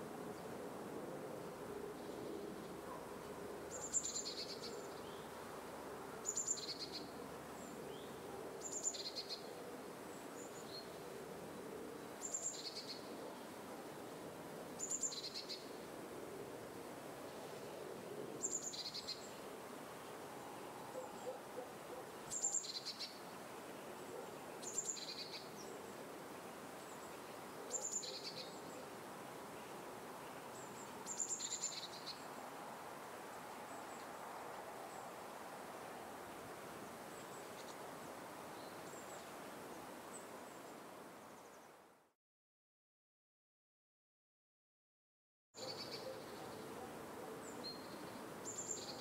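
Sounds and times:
outdoor ambience hiss: 0.0s - 42.2s, 45.6s - 49.0s.

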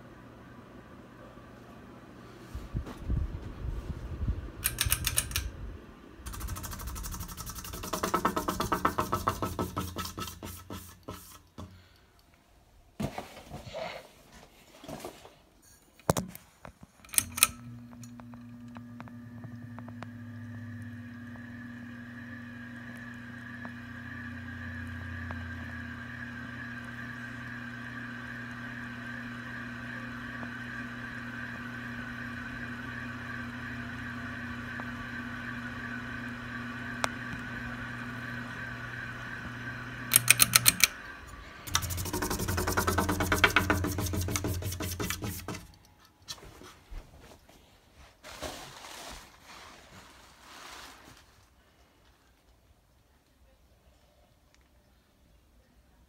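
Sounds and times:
ceiling fan motor humming: 0.0s - 12.9s, 16.9s - 47.0s
quick run of clicks: 6.3s - 10.2s, 40.1s - 41.0s, 41.7s - 45.9s
faint wavering whine: 17.3s - 43.2s.

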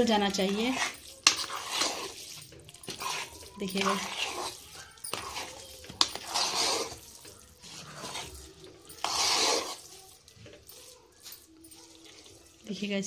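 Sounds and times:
metal spoon clinking pot: 0.0s - 12.8s
wet scraping and squelching: 0.0s - 12.8s.

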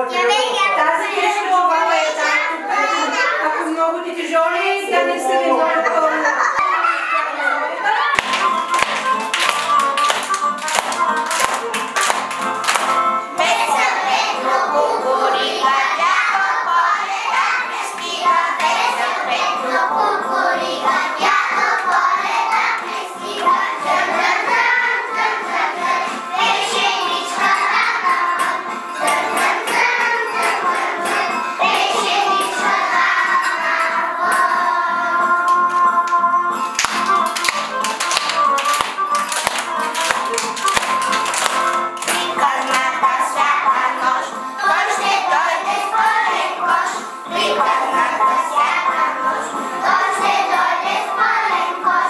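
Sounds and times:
hand claps: 8.2s - 13.9s, 35.5s - 43.0s
children singing: 12.2s - 52.0s.

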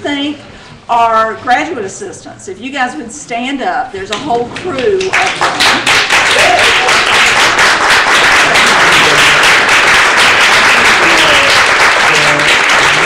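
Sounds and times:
audience applauding: 5.0s - 13.0s.

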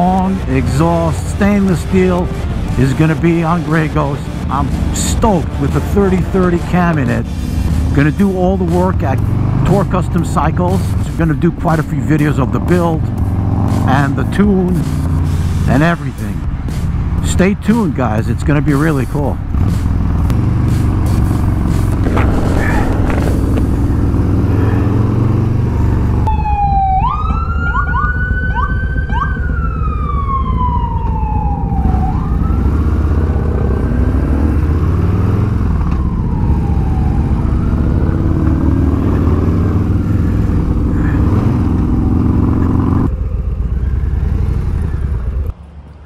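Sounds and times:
wind: 0.0s - 46.0s
motorcycle engine running: 18.7s - 26.3s, 37.1s - 45.5s
siren wailing: 22.0s - 33.4s, 35.5s - 39.2s.

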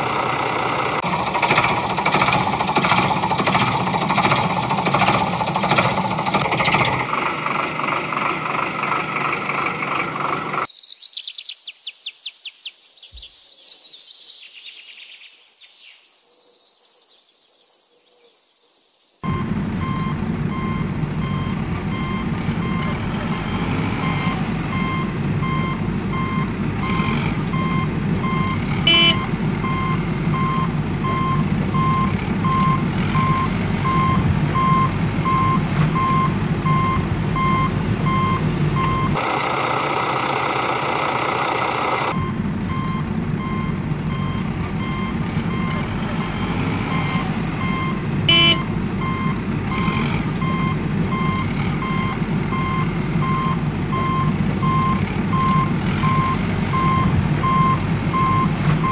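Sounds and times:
low engine rumble: 0.0s - 10.7s, 19.2s - 58.9s
reversing alarm beeping: 19.2s - 39.2s, 42.1s - 58.9s.

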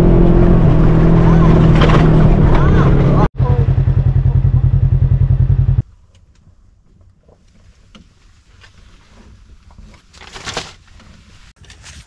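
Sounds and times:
engine running with low pulsing: 0.0s - 5.9s
paper map rustling: 7.0s - 12.0s.

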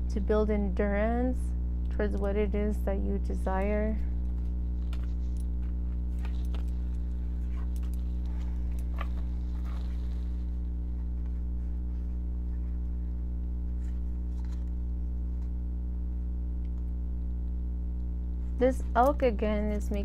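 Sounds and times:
low buzzing hum: 0.0s - 20.0s.

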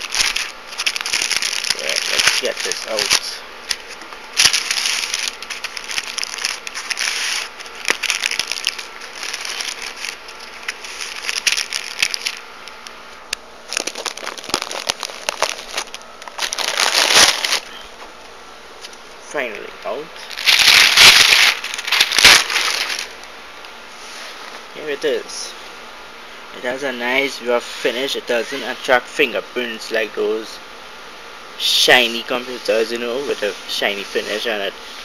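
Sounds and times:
foam packing rubbing: 0.0s - 12.4s, 13.7s - 18.0s, 20.2s - 23.2s
plastic bag crinkling: 0.0s - 12.4s, 13.6s - 17.8s, 20.2s - 23.2s.

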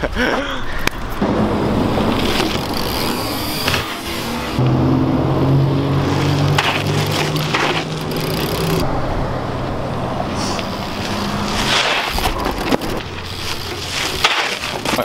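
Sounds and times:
low hum of road traffic: 0.1s - 15.0s
bike tyres rolling on gravel: 1.2s - 4.6s, 6.0s - 8.8s, 10.3s - 15.0s
bike scrape and knock: 1.3s - 4.6s, 6.0s - 8.8s, 10.3s - 15.0s.

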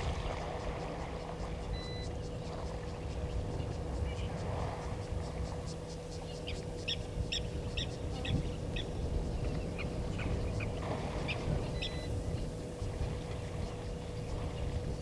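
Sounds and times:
faint steady hum: 0.0s - 15.0s
steady low rumble: 0.0s - 15.0s
bird chirping: 11.6s - 12.5s.

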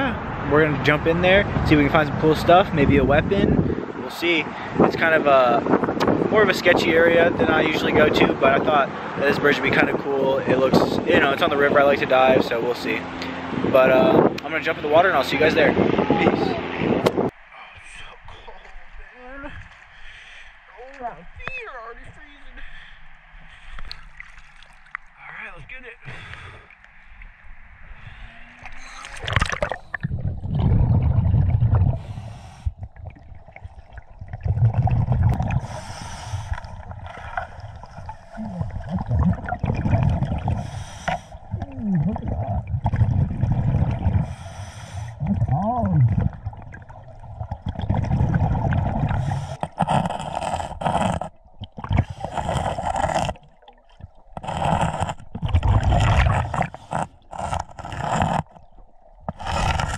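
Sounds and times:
exhaled bubbles underwater: 28.6s - 59.9s.

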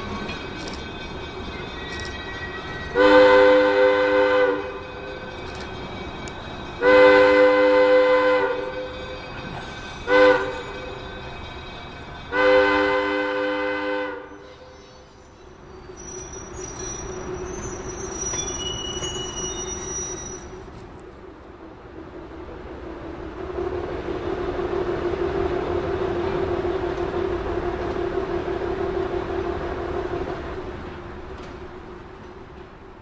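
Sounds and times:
diesel locomotive engine running: 0.0s - 33.0s
locomotive horn blasts: 2.9s - 5.2s, 6.8s - 9.0s, 10.0s - 11.0s, 12.3s - 15.0s.

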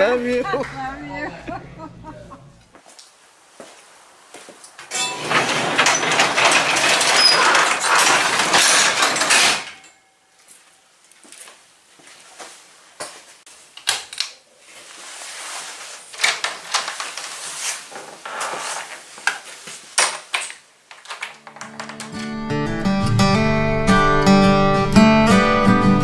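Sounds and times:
knocks and rustles of handling: 4.4s - 22.2s
acoustic guitar strumming: 21.7s - 26.0s.

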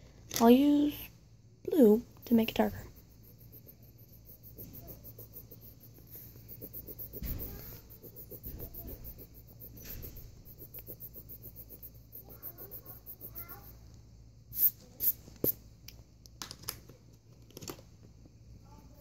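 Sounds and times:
pencil shading on paper: 2.3s - 13.7s
high-pitched pulsing: 2.8s - 13.4s.

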